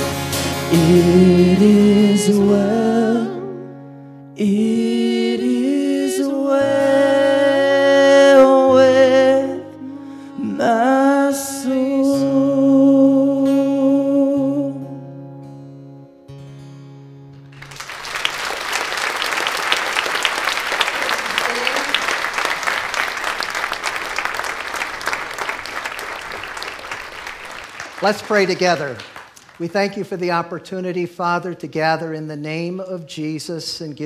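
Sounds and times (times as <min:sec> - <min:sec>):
strummed acoustic guitar: 0:00.0 - 0:04.3, 0:12.1 - 0:17.6
man and woman singing: 0:00.7 - 0:03.7, 0:04.4 - 0:14.8
audience applause: 0:17.6 - 0:30.0.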